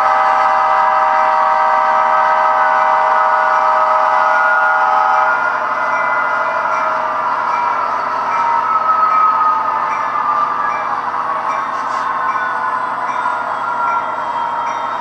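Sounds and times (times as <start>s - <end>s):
model locomotive air horn: 0.0s - 7.7s
model locomotive running sound: 0.0s - 15.0s.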